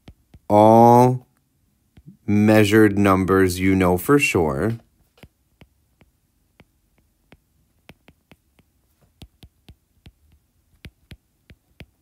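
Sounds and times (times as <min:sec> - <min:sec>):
stylus tapping on glass screen: 0:05.2 - 0:12.0.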